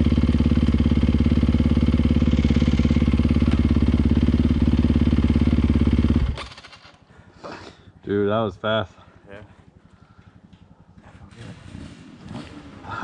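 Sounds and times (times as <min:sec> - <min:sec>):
motorcycle engine idling: 0:00.0 - 0:13.0.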